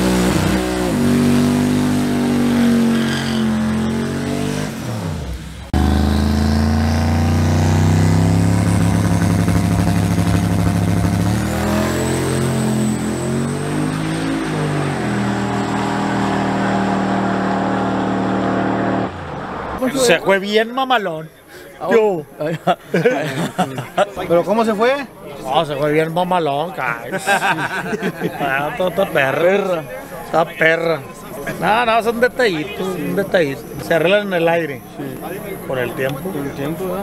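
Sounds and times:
pickup engine revving: 0.0 - 19.8.

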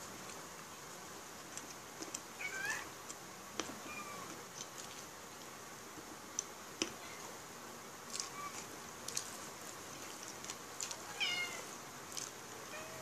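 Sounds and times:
cat meowing: 2.4 - 2.9, 11.1 - 11.7, 12.7 - 13.0.

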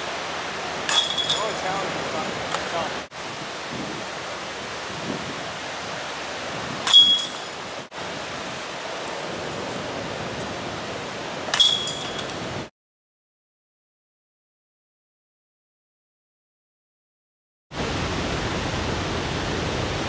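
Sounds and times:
outdoor hiss: 0.0 - 12.7
discs striking metal chains: 0.9 - 3.1, 6.9 - 7.9, 11.5 - 12.7.

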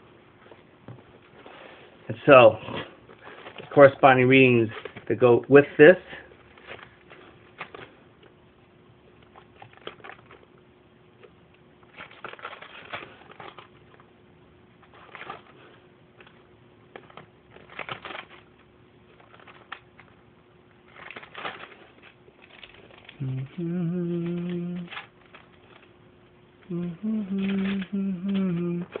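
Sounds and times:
faint steady hum: 0.0 - 29.0
paper rustling: 6.2 - 8.0, 9.2 - 10.5, 11.2 - 14.1, 14.8 - 20.2, 20.8 - 26.0, 26.8 - 29.0.

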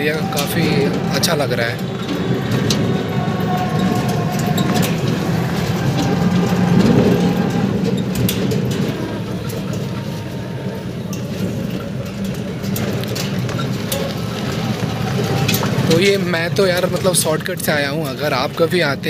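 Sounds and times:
metal frame rattling: 0.0 - 19.0
tyres rumbling on rough road: 0.0 - 19.0.

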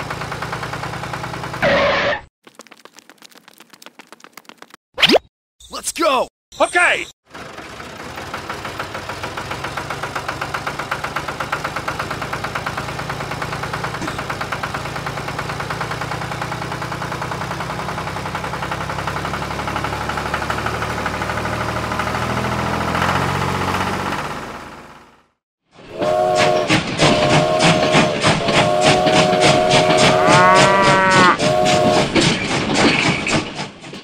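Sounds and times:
tractor engine chugging: 0.0 - 1.7, 7.3 - 22.4, 26.3 - 34.0.

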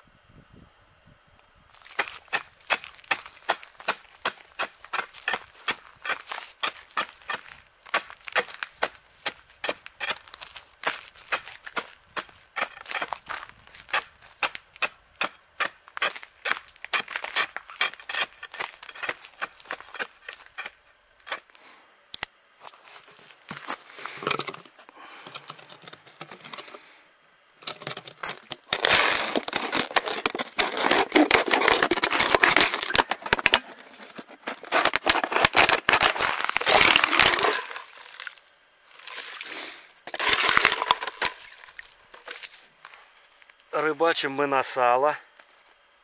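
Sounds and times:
ice pick chopping ice: 1.8 - 21.5, 27.7 - 38.2, 40.1 - 42.3
knife cutting plastic bottle: 27.6 - 37.8.

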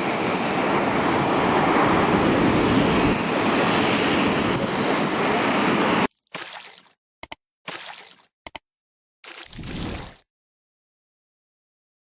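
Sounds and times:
jet engines rushing: 0.0 - 6.1.

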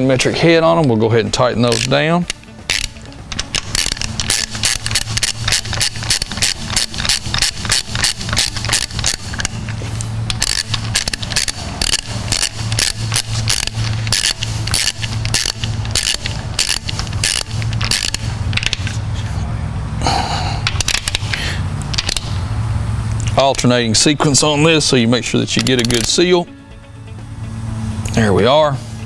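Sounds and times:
hand ratchet clicking: 1.6 - 19.0, 20.6 - 22.4, 25.5 - 26.2.

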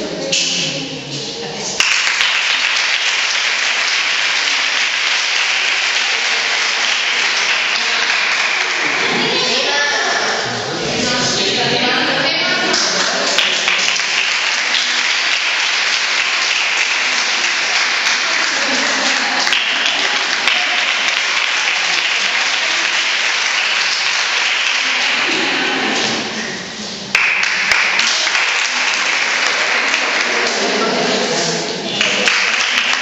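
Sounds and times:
audience applauding: 1.8 - 9.4, 12.7 - 26.4, 27.1 - 31.1, 31.9 - 33.0.

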